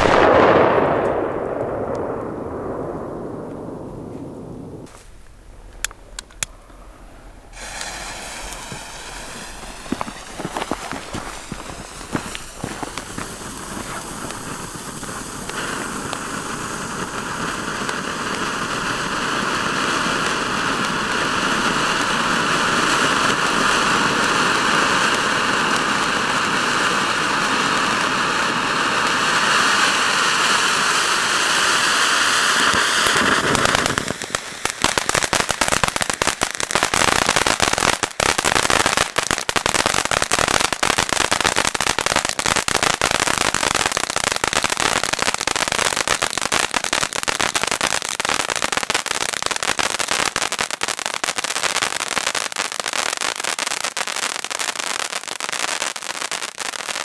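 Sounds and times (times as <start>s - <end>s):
firework spraying sparks hiss: 4.1s - 57.0s
fast crackling of small pops: 7.7s - 16.4s.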